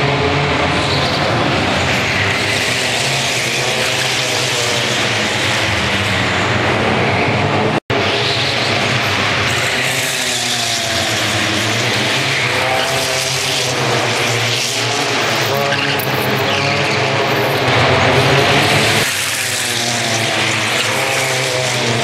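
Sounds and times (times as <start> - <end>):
car engines revving: 0.0 - 22.0.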